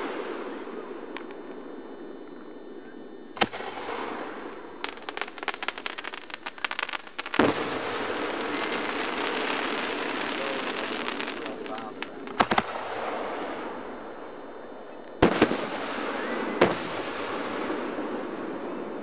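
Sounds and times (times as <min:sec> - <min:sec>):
crackling firework pops: 0:00.0 - 0:01.7, 0:03.4 - 0:13.4, 0:15.0 - 0:17.8
firework booms: 0:03.3 - 0:14.5, 0:15.1 - 0:19.0.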